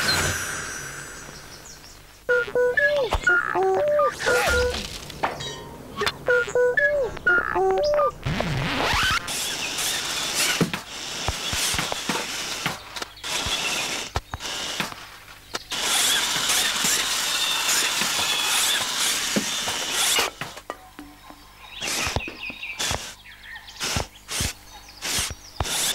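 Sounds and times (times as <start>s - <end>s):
toy car electric motor whirring: 8.9s - 15.0s, 15.6s - 20.6s, 23.8s - 25.9s.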